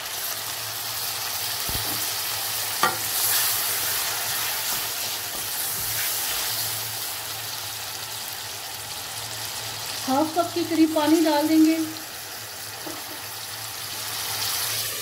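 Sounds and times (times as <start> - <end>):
vegetables sizzling in hot oil: 0.0 - 15.0
spoon knocking against pan: 2.8 - 3.1.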